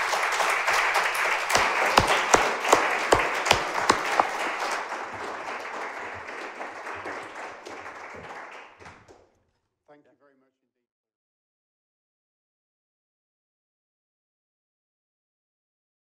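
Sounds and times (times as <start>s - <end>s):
audience applauding: 0.0s - 9.3s
sharp claps: 0.0s - 9.3s.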